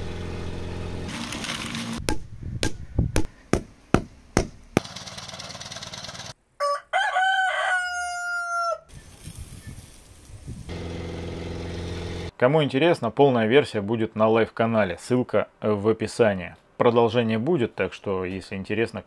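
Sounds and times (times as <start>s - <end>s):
small engine running: 0.0s - 2.0s, 4.8s - 6.4s, 10.7s - 12.3s
sharp knocks: 2.1s - 4.9s
rooster crowing: 6.6s - 9.0s.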